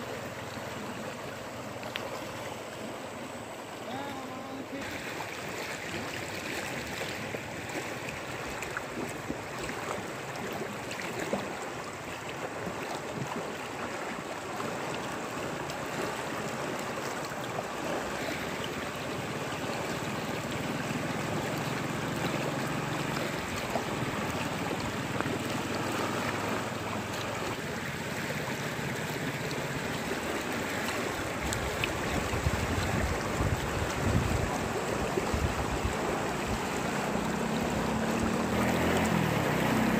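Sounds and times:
floodwater rushing: 0.0 - 39.9
wind buffeting microphone: 31.4 - 38.2.

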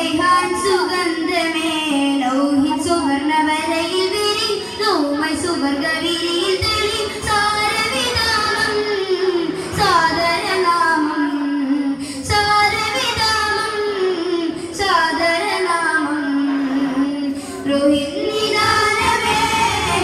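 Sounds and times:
boys singing through pa: 4.9 - 20.0.

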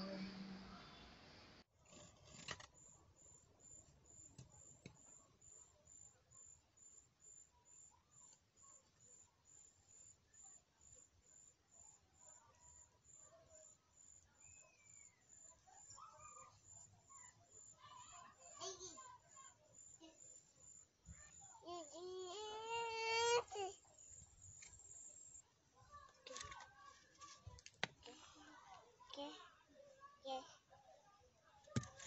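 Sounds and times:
faint high chirp: 2.7 - 21.6.

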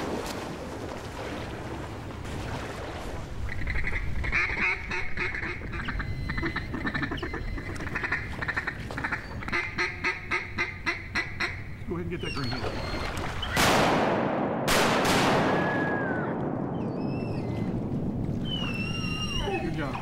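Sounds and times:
water splashing: 0.0 - 4.4, 12.2 - 13.8
mallard quacking: 3.5 - 11.7.

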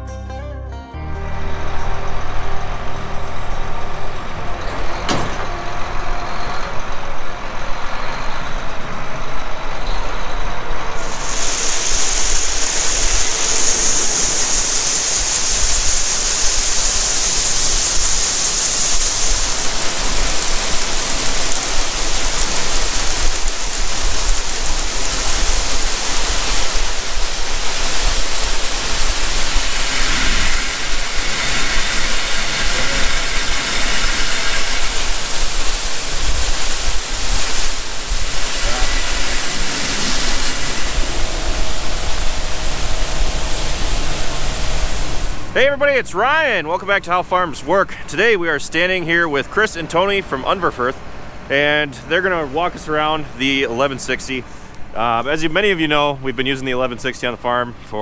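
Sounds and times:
machinery hum: 1.0 - 58.0
grain pouring: 11.0 - 46.4.

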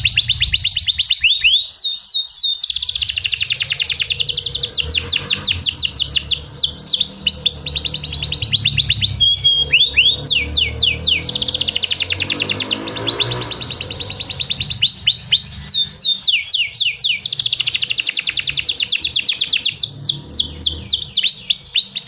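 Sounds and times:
steady low hum: 0.0 - 1.2
canary singing trills: 0.0 - 22.0.

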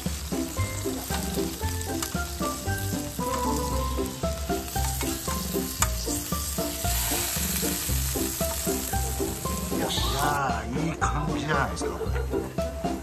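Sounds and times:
rhythmic background music: 0.0 - 13.0
steak sizzling: 0.0 - 13.0.

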